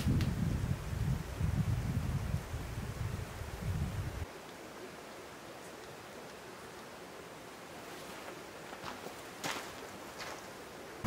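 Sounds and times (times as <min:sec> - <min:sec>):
wind buffeting microphone: 0:00.0 - 0:04.2
faint outdoor hiss: 0:00.0 - 0:11.0.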